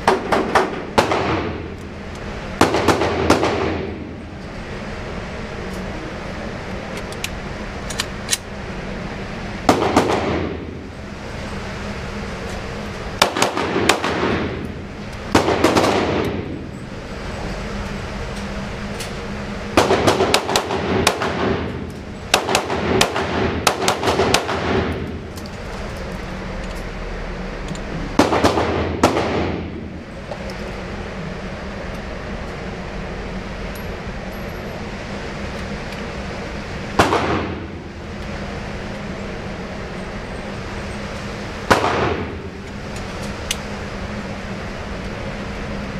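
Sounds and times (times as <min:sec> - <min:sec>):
low background hum: 0:00.0 - 0:45.9
pistol shots echoing: 0:02.6 - 0:04.0, 0:13.2 - 0:14.5, 0:15.3 - 0:16.5, 0:19.8 - 0:21.7, 0:22.3 - 0:24.9, 0:28.2 - 0:29.6.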